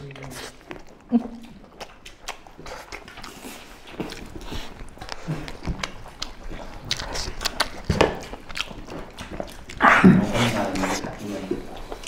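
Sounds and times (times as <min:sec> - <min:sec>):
people chewing meat off bone: 0:00.0 - 0:12.0.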